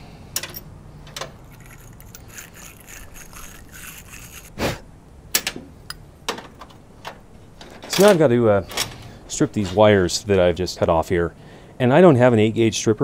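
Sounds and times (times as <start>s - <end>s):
wire brush scraping metal: 1.4s - 4.8s.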